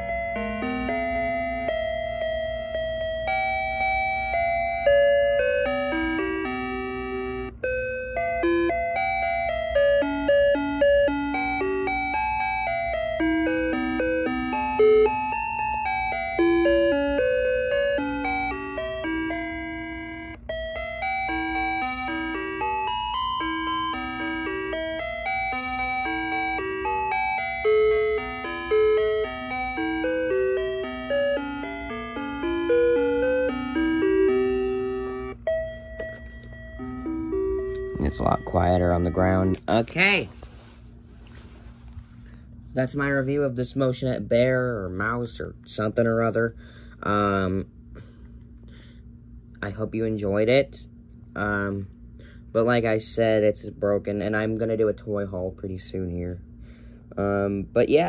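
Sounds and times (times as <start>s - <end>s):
square-wave electronic melody: 0.0s - 42.2s.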